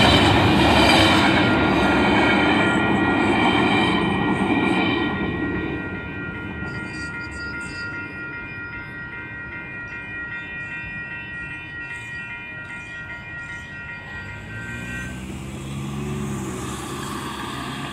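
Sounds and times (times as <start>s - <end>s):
crossing warning bell ringing: 0.0s - 17.9s
vehicle engine revving: 14.2s - 17.9s.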